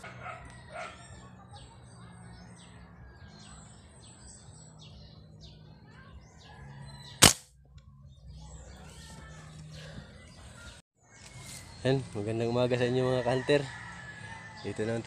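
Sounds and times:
small birds chirping: 0:00.0 - 0:13.0
gunshot: 0:07.2 - 0:07.5.

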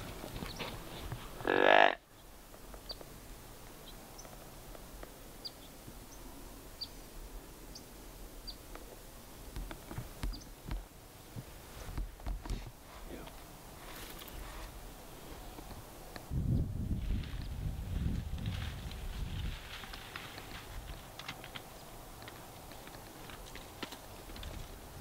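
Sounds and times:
low moo-like call: 0:01.4 - 0:02.0.

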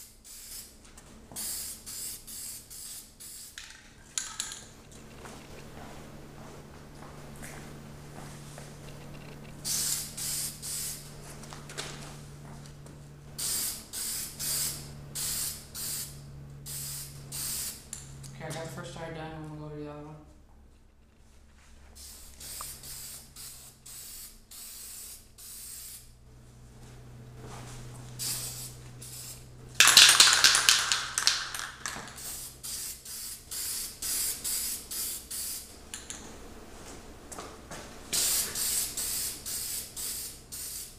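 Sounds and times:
aerosol spray hissing: 0:00.0 - 0:00.8, 0:01.4 - 0:03.6, 0:09.6 - 0:11.1, 0:13.4 - 0:17.9, 0:22.0 - 0:26.1, 0:28.2 - 0:35.7, 0:38.2 - 0:40.9.

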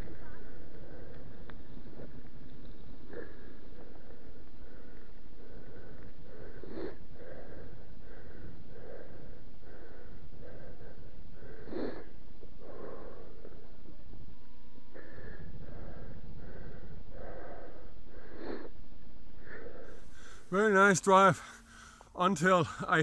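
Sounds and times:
low rumble: 0:00.0 - 0:20.5
man breathing hard: 0:03.4 - 0:13.7, 0:19.4 - 0:23.0.

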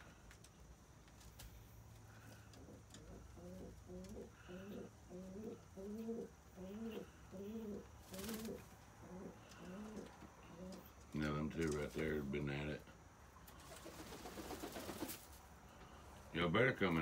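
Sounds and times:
pigeons cooing: 0:02.1 - 0:11.2.

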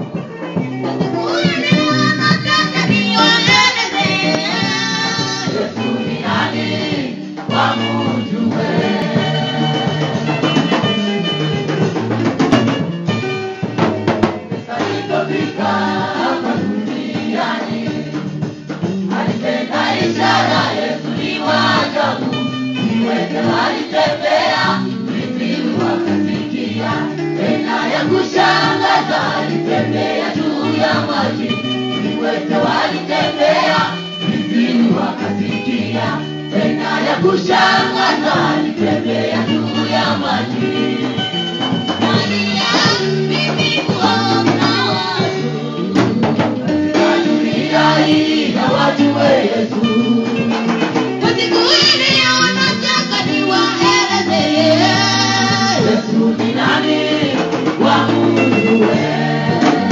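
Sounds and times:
gospel choir singing: 0:00.0 - 0:59.9
guitar keyboard and drums: 0:00.0 - 0:59.9.

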